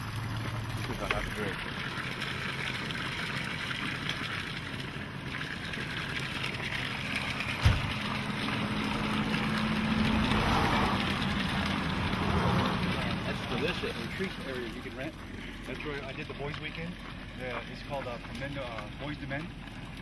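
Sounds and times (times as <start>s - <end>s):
water splashing onto rocks: 0.0s - 20.0s
thump: 7.6s - 7.9s.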